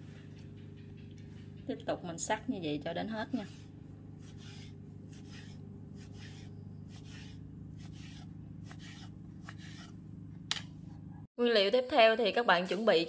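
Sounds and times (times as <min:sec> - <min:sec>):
low steady hum: 0:00.0 - 0:13.0
knife cutting on wooden board: 0:03.3 - 0:10.7.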